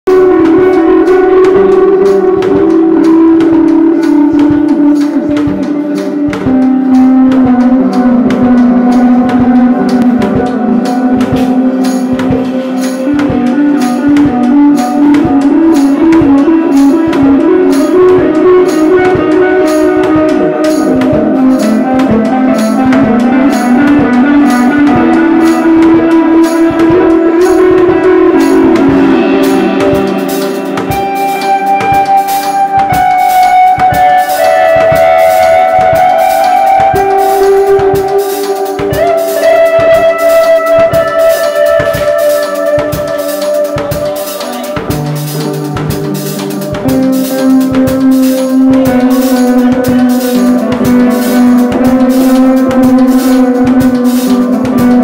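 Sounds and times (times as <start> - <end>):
effects-laden electric guitar melody: 0.0 - 55.0
drum hits: 0.1 - 55.0.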